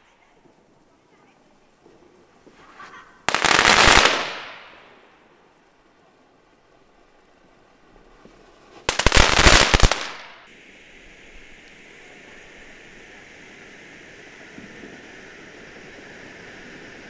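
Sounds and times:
firework crackling: 0.0s - 17.0s
firework hissing: 0.0s - 17.0s.

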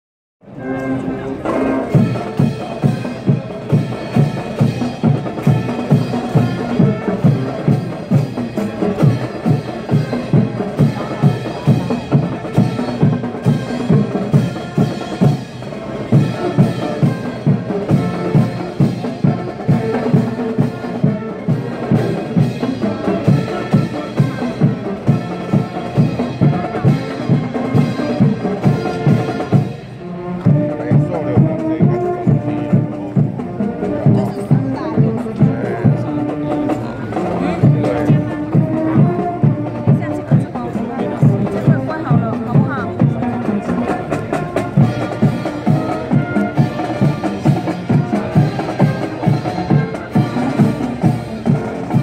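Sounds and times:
marching band brass: 0.4s - 52.0s
steady drum beat: 1.5s - 52.0s.

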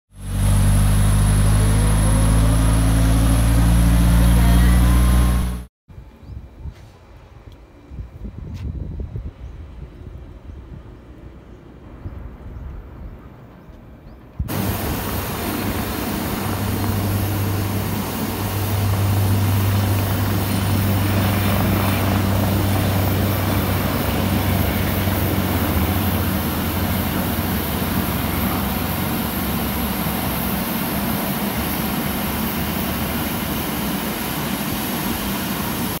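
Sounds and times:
helicopter taking off: 0.1s - 5.7s, 14.5s - 36.0s.

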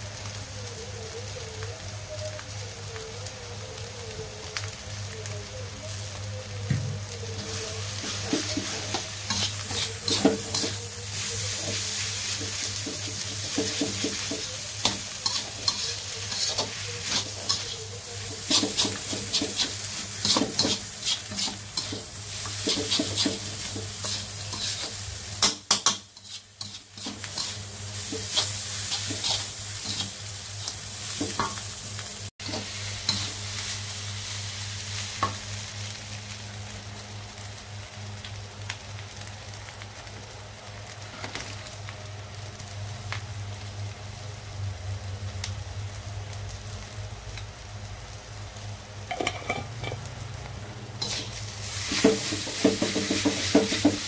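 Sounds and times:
wok sizzling: 0.0s - 54.0s
metal spatula scraping a wok: 7.4s - 10.8s, 11.4s - 30.2s, 49.1s - 50.1s, 51.0s - 54.0s.

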